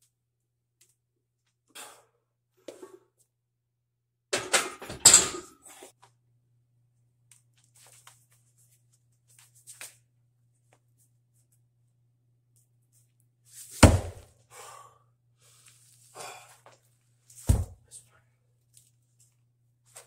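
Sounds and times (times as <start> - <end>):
breaths: 1.7 - 2.8, 14.4 - 16.8
small scuffs: 7.3 - 10.0.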